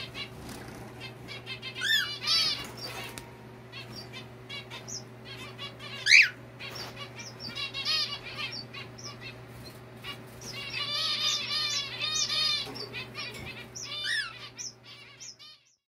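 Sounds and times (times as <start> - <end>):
finches calling: 0.0 - 15.8
steady low hum: 0.0 - 15.8.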